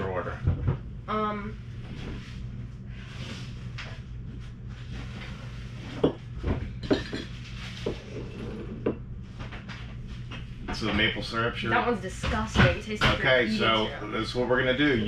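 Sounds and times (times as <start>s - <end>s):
steady low hum: 0.0s - 15.0s
bottles and cups knocking on table: 6.0s - 9.0s.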